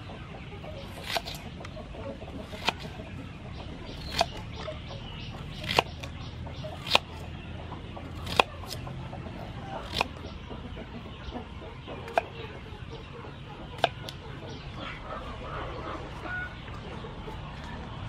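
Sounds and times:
knife slicing onion: 0.9s - 1.4s, 2.4s - 3.0s, 4.0s - 4.5s, 5.5s - 6.0s, 6.7s - 7.1s, 8.2s - 8.8s, 9.8s - 10.3s.

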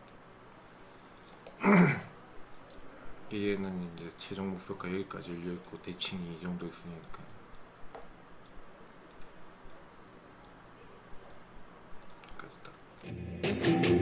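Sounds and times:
keyboard and mouse clicks: 6.4s - 9.8s, 12.0s - 12.8s
loud music: 13.1s - 14.0s.

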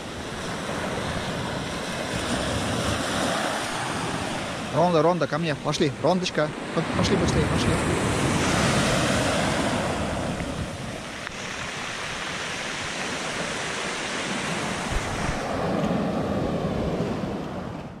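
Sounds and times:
waves washing onto pebble beach: 0.0s - 17.4s
wind buffeting microphone: 6.6s - 18.0s.

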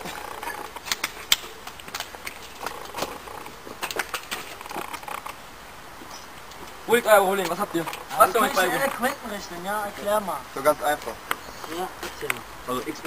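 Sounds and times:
footsteps on pavement: 0.0s - 5.2s, 6.0s - 8.2s, 10.8s - 13.0s
outdoor hiss: 0.0s - 13.0s.

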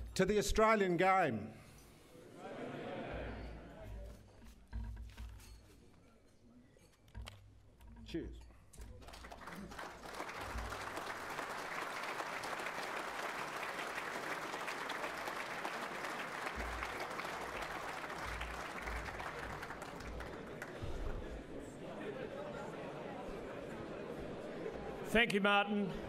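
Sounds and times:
audience applauding: 9.0s - 21.5s.

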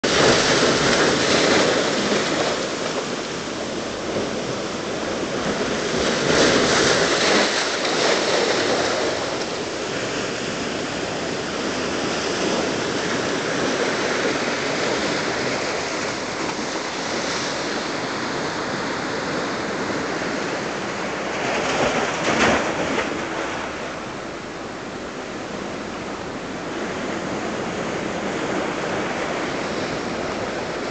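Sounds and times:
surf washing against rocks: 0.0s - 30.9s.

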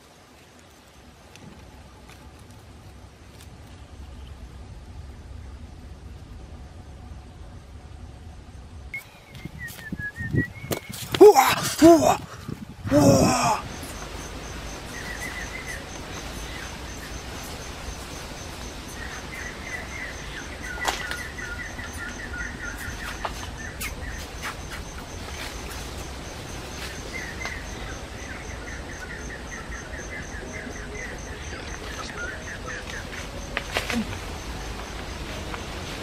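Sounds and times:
rapid high chirping calls: 13.6s - 33.2s.

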